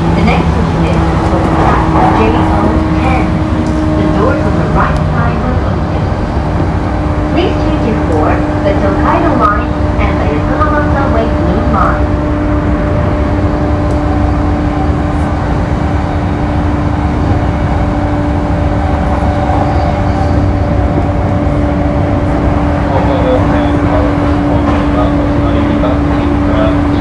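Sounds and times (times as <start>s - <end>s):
constant low hum: 0.0s - 27.0s
train wheels rumbling on rail: 0.0s - 27.0s.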